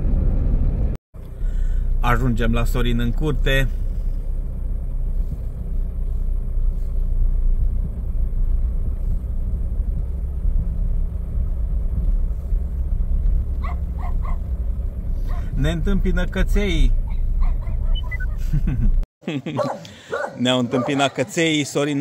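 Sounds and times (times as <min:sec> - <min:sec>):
car rolling rumble: 0:00.0 - 0:20.9
dog barking: 0:13.6 - 0:14.5, 0:15.2 - 0:15.6, 0:17.1 - 0:18.3, 0:19.6 - 0:21.4.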